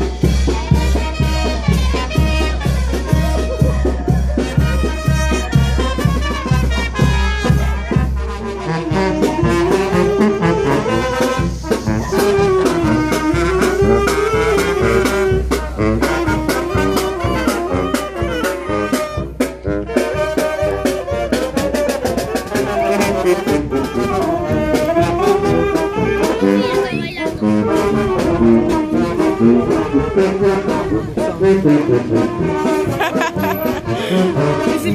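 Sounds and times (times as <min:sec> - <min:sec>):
bass drum and snare beat: 0:00.0 - 0:34.9
brass band marching: 0:00.0 - 0:34.9
trumpets and sousaphone melody: 0:00.0 - 0:34.9.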